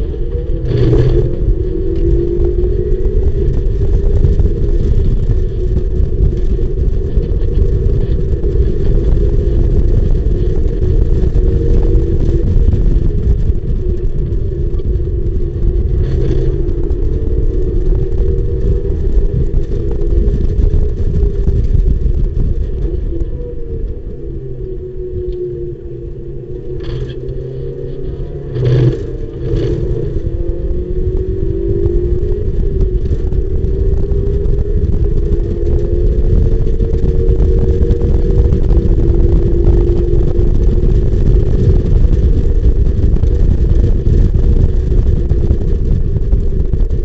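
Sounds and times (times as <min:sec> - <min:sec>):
race car engine accelerating: 0:00.0 - 0:14.9, 0:22.7 - 0:42.8
wind rumble on microphone: 0:00.0 - 0:47.0.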